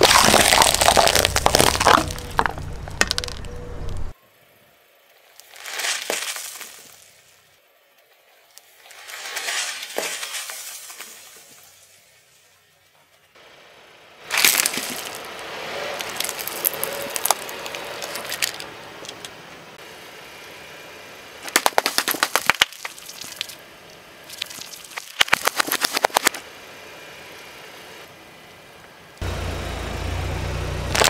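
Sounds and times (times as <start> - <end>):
tyre crushing plastic cup: 0.0 - 3.4, 14.3 - 15.2, 21.5 - 23.5, 24.3 - 26.3
plastic tubes bursting: 0.0 - 3.5, 14.3 - 15.3, 16.0 - 18.7, 21.4 - 23.6, 24.3 - 26.4.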